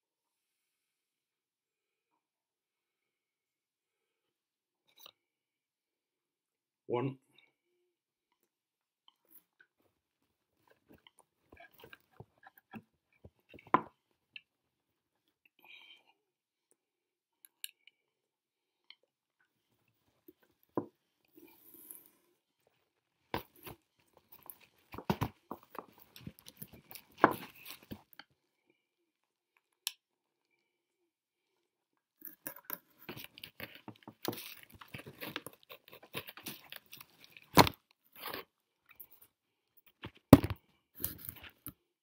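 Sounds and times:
pipes being handled: 20.4s - 28.2s.

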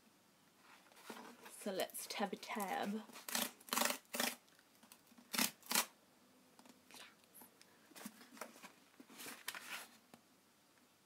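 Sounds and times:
cardboard rustling: 0.6s - 1.6s, 7.9s - 10.0s.

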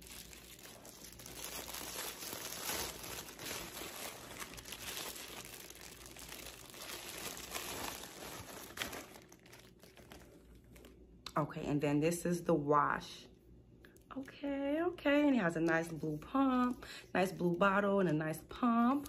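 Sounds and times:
packaging crinkling: 0.0s - 11.0s.

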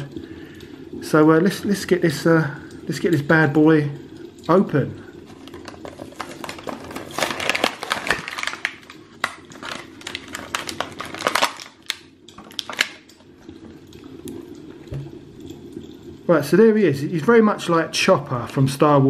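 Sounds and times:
plastic blister pack crinkling: 5.2s - 13.6s.

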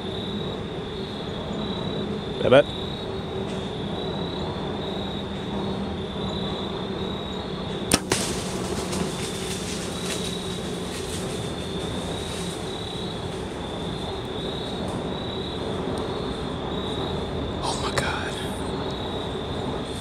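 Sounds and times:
insects droning: 0.0s - 20.0s
arrow striking animal: 7.9s - 9.9s
bow string crack: 7.9s - 11.2s.

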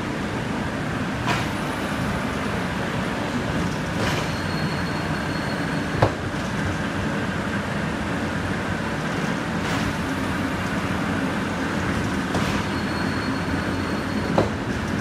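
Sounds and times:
printing machine rumble: 0.0s - 15.0s
machine clanks: 3.6s - 6.7s, 11.8s - 15.0s.

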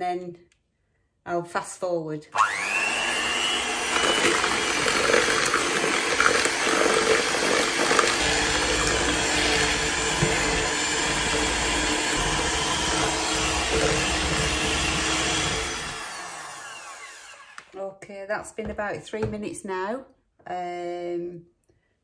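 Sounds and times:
electric hand mixer running: 2.4s - 17.8s.

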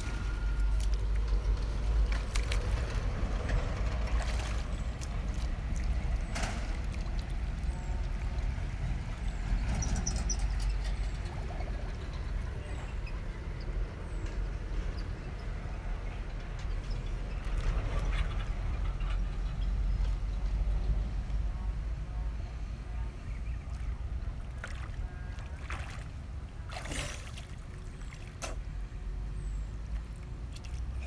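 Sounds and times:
water sloshing and splashing: 0.0s - 13.8s, 16.4s - 19.0s, 23.2s - 31.0s
steady low rumble: 0.0s - 31.0s.

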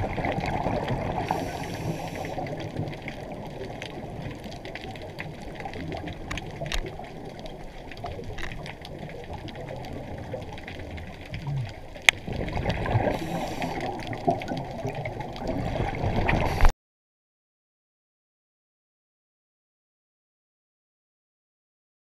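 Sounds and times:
underwater water rush and bubbling: 0.0s - 16.7s.

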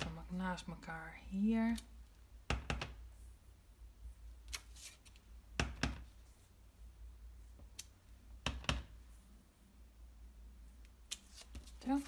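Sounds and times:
paper rustle: 4.5s - 5.2s.

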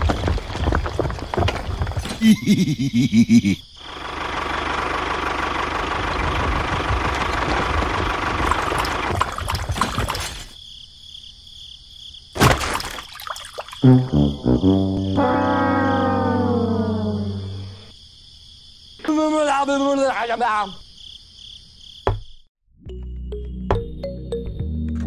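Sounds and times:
toy tractor crunching over stones: 0.0s - 2.2s, 6.0s - 10.6s.

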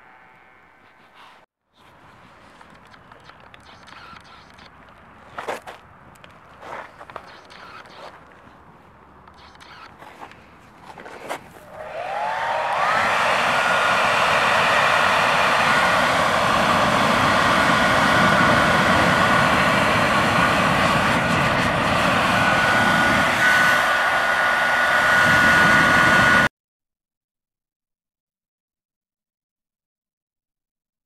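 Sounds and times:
hair dryer motor whine: 11.6s - 26.5s
rush of air: 11.6s - 26.5s.

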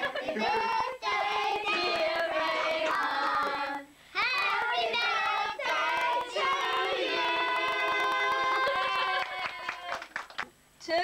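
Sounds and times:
children singing: 0.0s - 8.8s.

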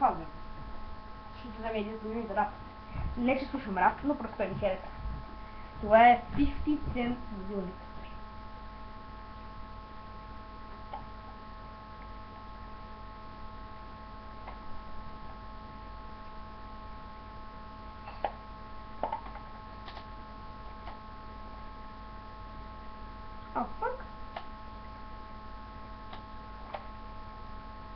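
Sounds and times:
steady electrical hum: 0.0s - 27.9s.

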